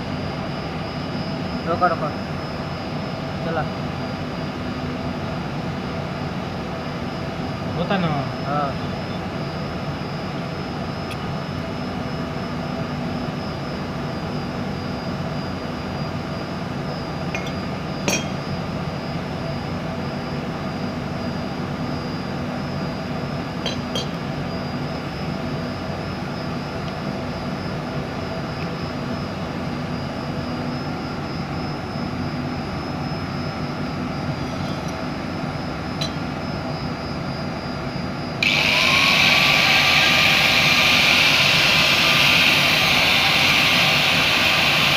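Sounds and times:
angle grinder whine: 0:17.1 - 0:19.7, 0:23.6 - 0:25.6, 0:30.2 - 0:44.9.

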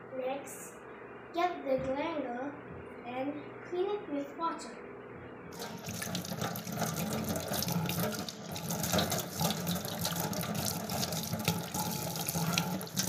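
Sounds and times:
tap water running into sink: 0:05.6 - 0:13.0.

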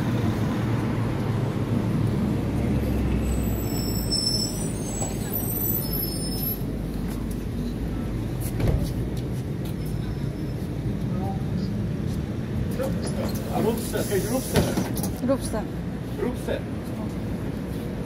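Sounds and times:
bus engine rumbling: 0:00.0 - 0:18.0.

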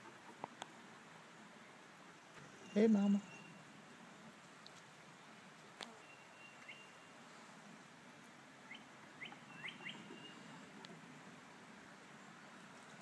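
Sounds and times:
outdoor hiss: 0:00.0 - 0:13.0
songbird calls: 0:02.3 - 0:03.7, 0:05.8 - 0:07.2, 0:08.6 - 0:10.8.

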